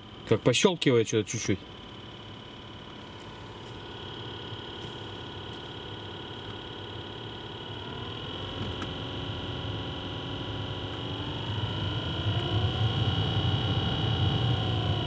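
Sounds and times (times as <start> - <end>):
blower fan whine: 0.0 - 15.0.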